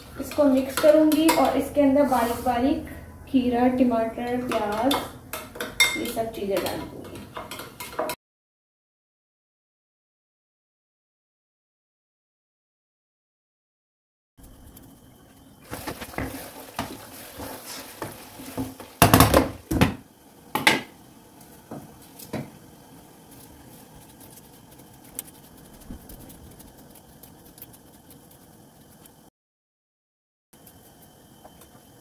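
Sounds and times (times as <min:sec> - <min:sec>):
knife and dishes clattering: 0:04.5 - 0:08.2.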